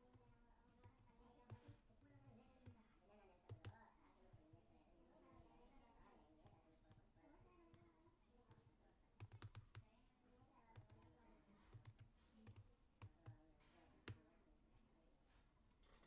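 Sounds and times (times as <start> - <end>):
computer keyboard keys clicking: 3.5 - 3.8, 9.2 - 9.8, 10.7 - 11.1, 11.7 - 13.4.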